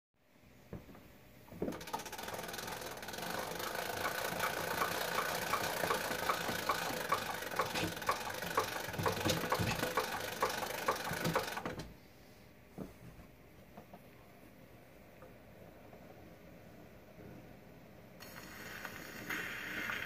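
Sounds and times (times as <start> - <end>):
gramophone spring motor whirring: 1.6 - 11.9.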